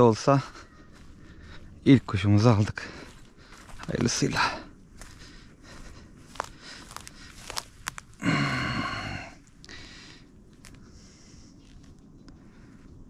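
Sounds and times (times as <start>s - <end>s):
footsteps in dry grass: 0.0s - 12.9s
sharp crackles: 5.0s - 12.7s.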